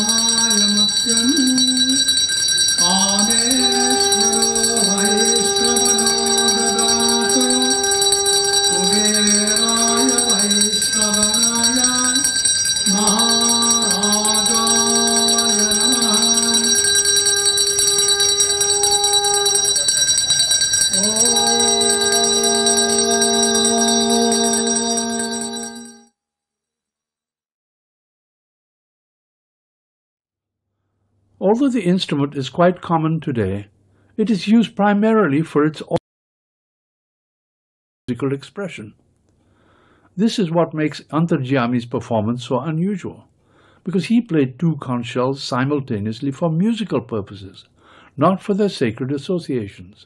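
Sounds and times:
conch shells blown: 0.0s - 26.0s
steady high ringing: 0.0s - 26.1s.

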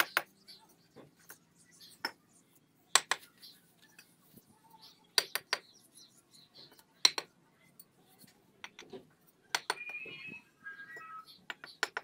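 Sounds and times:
trowel knocking bricks: 0.0s - 0.4s, 2.9s - 3.3s, 7.0s - 7.3s, 8.6s - 9.9s, 11.5s - 12.0s.

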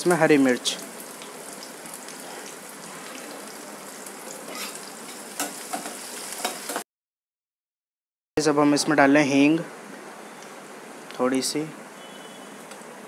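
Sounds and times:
vegetables sizzling in hot oil: 0.0s - 6.8s.

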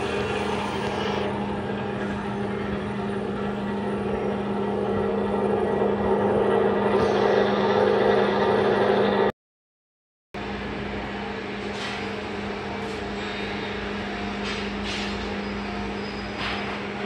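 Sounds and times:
machine drone with low hum: 0.0s - 9.3s, 10.4s - 17.0s.

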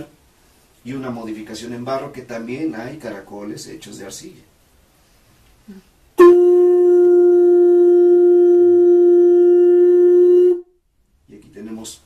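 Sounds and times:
conch trumpet blast: 6.2s - 10.7s.

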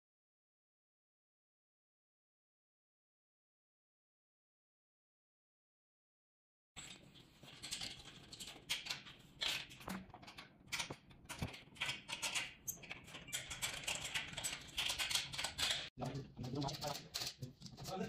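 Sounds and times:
metal parts clicking and scraping: 6.8s - 18.0s.

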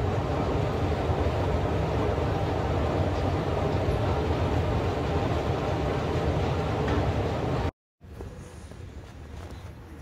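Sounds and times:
escalator rumbling: 0.0s - 7.7s.

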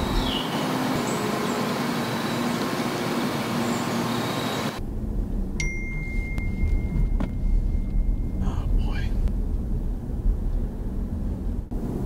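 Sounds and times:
outdoor hiss: 0.0s - 4.8s
car road rumble inside cabin: 0.0s - 12.0s
high steady electronic tone: 5.6s - 8.7s.

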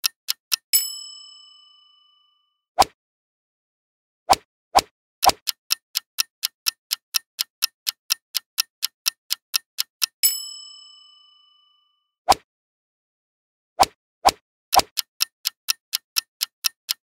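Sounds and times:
clock ticking: 0.0s - 0.8s, 5.2s - 10.3s, 14.7s - 17.0s
bell-like ding: 0.8s - 2.5s, 10.2s - 12.0s.

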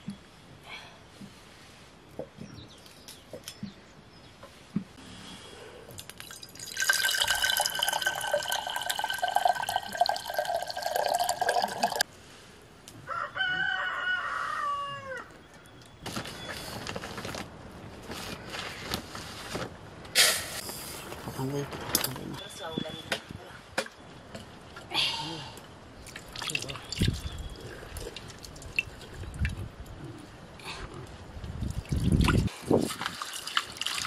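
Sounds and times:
water pouring into metal pot: 6.2s - 12.0s, 33.0s - 34.0s
rooster crowing: 13.0s - 15.4s.

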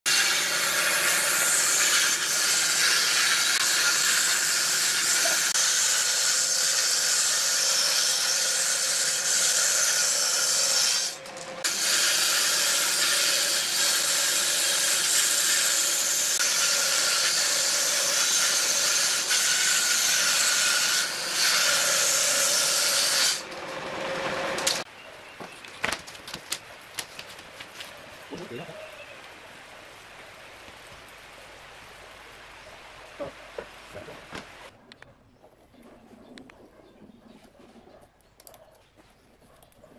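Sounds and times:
table saw cutting wood: 0.1s - 24.9s.

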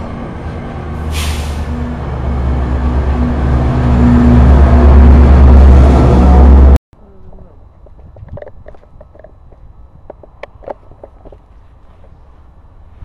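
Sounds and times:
train coaches rolling past: 0.0s - 6.8s
diesel locomotive engine drone: 0.0s - 13.0s
sharp hiss of air: 1.1s - 1.7s.

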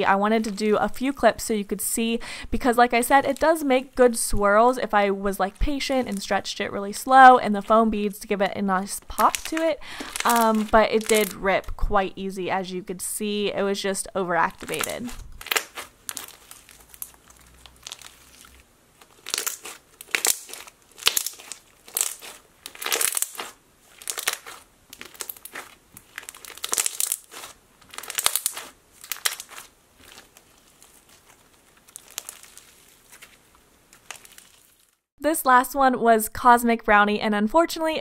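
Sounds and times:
slime crackling and popping: 7.6s - 11.8s, 14.5s - 35.1s.

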